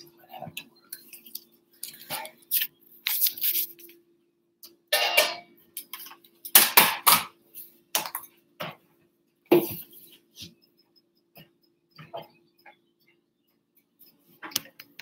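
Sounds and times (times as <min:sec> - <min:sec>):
recording device handling noise: 0:00.4 - 0:04.0, 0:14.0 - 0:15.0.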